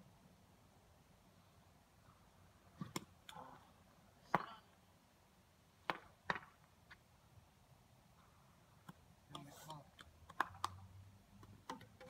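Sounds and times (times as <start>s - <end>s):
plastic bat knocking ball: 5.9s - 6.6s.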